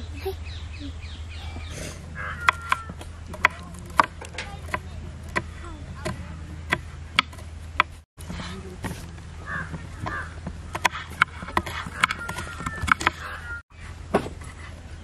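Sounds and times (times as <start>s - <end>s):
knives chopping on wooden board: 2.4s - 8.0s, 8.8s - 13.3s.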